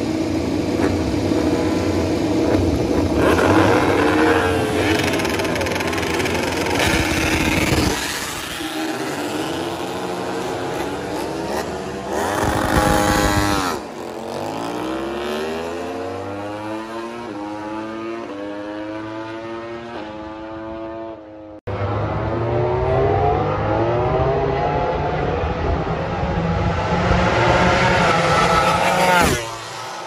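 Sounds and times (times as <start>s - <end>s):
racing motorcycles accelerating: 0.0s - 30.0s.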